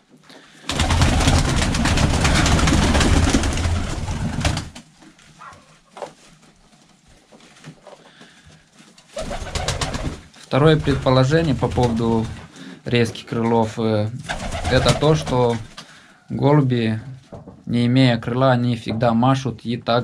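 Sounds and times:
pigeon wingbeats clattering: 0.6s - 6.2s, 9.0s - 12.5s, 14.2s - 15.8s.

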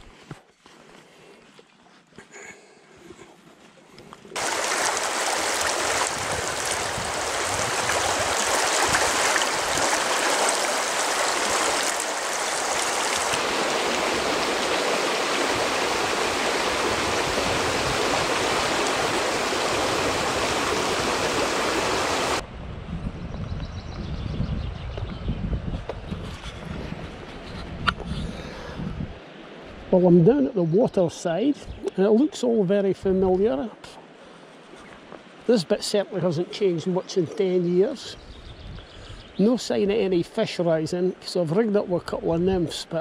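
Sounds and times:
river water rushing over rocks: 4.4s - 22.4s.

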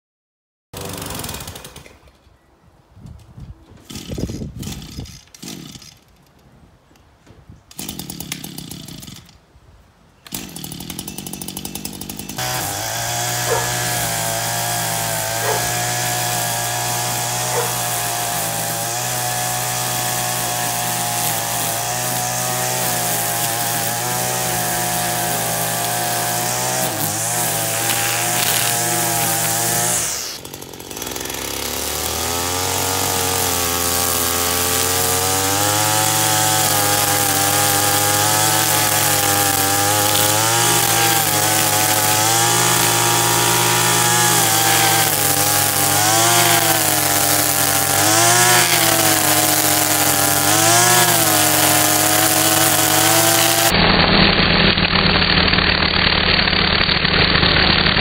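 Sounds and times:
string trimmer running: 0.8s - 2.0s, 3.9s - 6.0s, 7.7s - 9.3s, 10.3s - 58.0s
string trimmer pull-start: 0.8s - 2.1s, 3.8s - 6.2s, 7.7s - 9.4s, 10.2s - 58.0s.

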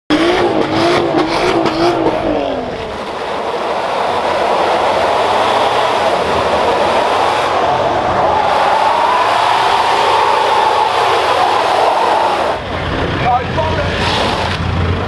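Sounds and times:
car engine revving with pops: 0.1s - 7.9s, 12.4s - 15.0s
diesel engine at high revs: 0.1s - 15.0s
wheels spinning on wet tarmac: 0.1s - 15.0s.

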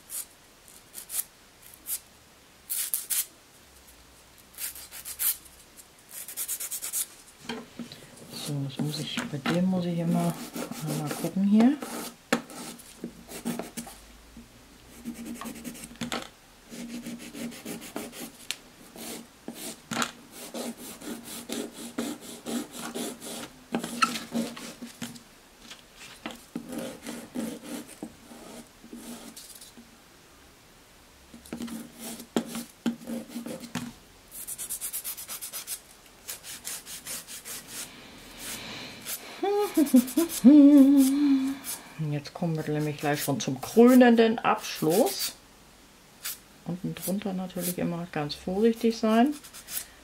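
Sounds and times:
nail file rasping on nails: 2.7s - 3.3s, 4.6s - 5.4s, 6.1s - 7.1s, 34.4s - 37.8s, 38.4s - 41.8s.

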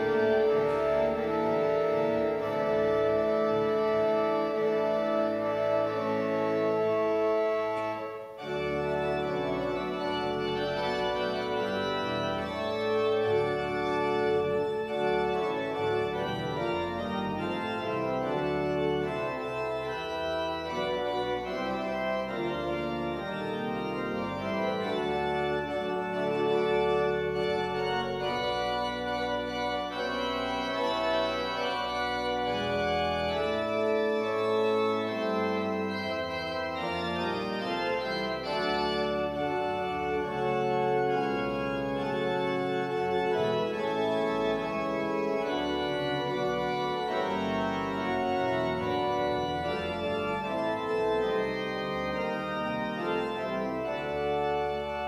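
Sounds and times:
pipe organ chords: 0.0s - 55.0s.

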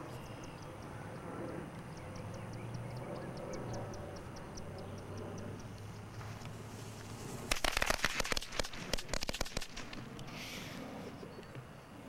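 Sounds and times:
sharp cracks and pops: 7.4s - 10.3s.

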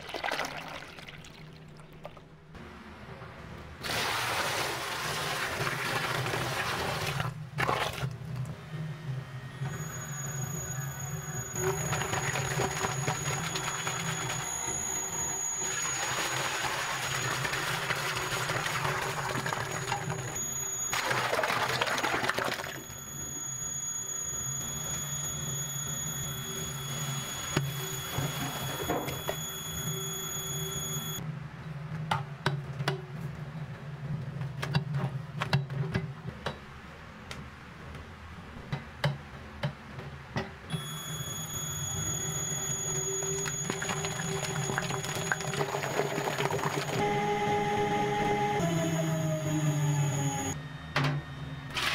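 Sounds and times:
electric mixer motor humming: 11.6s - 21.3s, 42.0s - 50.6s.

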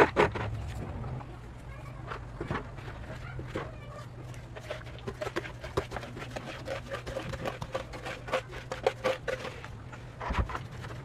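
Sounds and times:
metal trowel scraping plastic cup: 4.3s - 11.0s.

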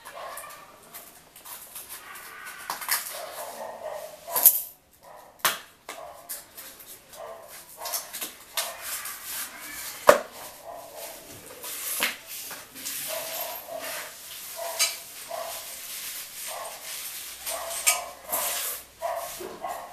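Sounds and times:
cardboard scraping and squeaking: 8.0s - 19.9s.

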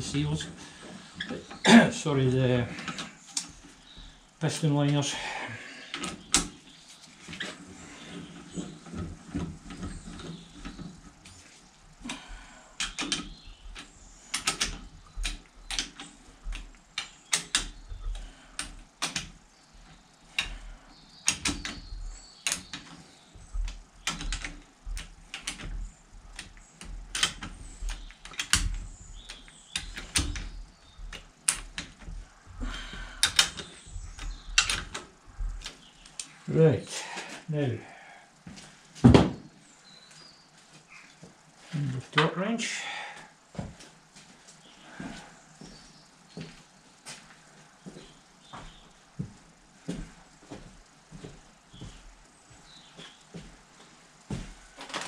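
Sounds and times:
hand ratchet clicking: 12.8s - 19.4s, 20.3s - 32.2s, 33.1s - 36.3s.

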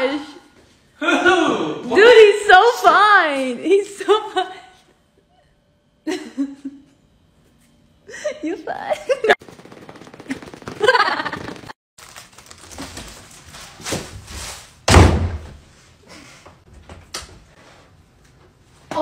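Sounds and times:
door shutting with heavy thud: 14.8s - 15.6s.

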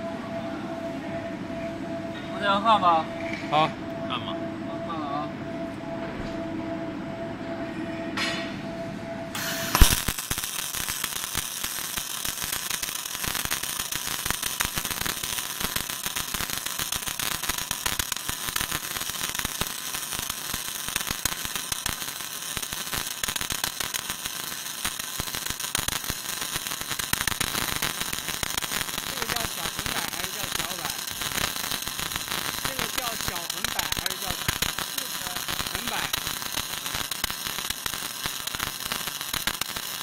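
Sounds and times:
welding arc crackling: 9.4s - 40.0s.

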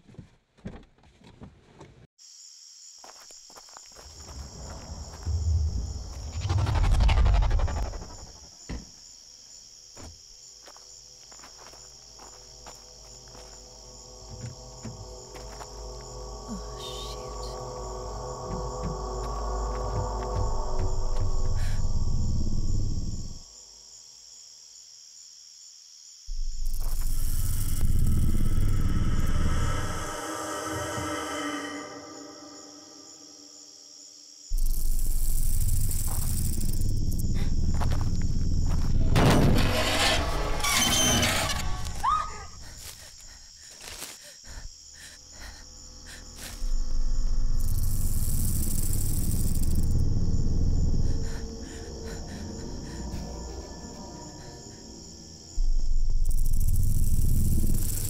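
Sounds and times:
insects chirping: 2.2s - 58.0s
deep rumbling sci-fi drone: 4.2s - 8.5s, 12.4s - 23.4s, 26.3s - 33.5s, 34.5s - 42.0s, 45.3s - 58.0s
high pulsing chirp: 12.8s - 23.4s, 26.3s - 39.2s.

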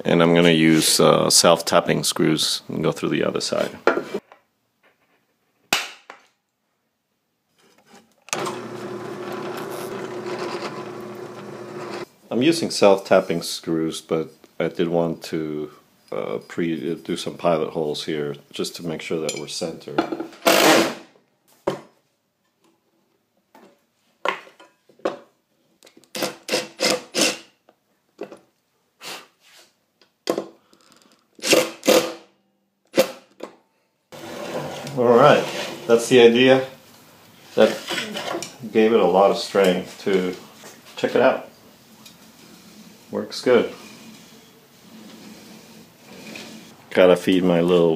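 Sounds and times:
drill press drilling steel: 8.3s - 12.1s.

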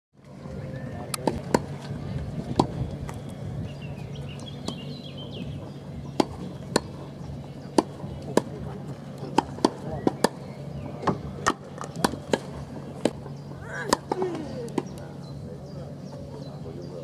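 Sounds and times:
tennis racket striking ball: 6.2s - 7.0s.

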